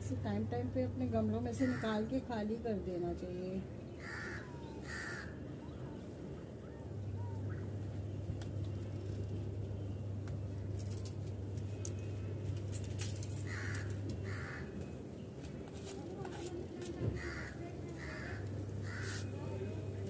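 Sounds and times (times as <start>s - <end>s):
steady low hum: 0.0s - 20.0s
crow cawing: 1.6s - 2.0s, 4.0s - 5.4s, 13.4s - 14.8s, 17.1s - 19.3s.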